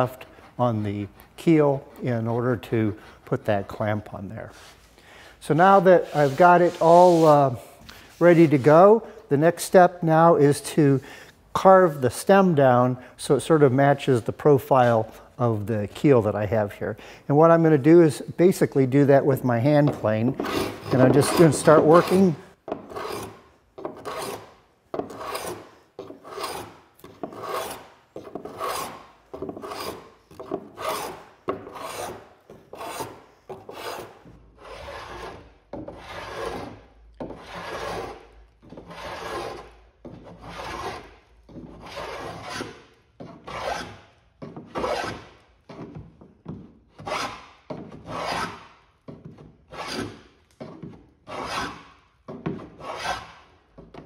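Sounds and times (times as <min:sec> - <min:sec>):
hand plane rasping on wood: 0:19.9 - 0:44.0, 0:44.7 - 0:45.2, 0:47.0 - 0:47.4, 0:48.0 - 0:48.7, 0:49.7 - 0:51.9, 0:52.5 - 0:53.4.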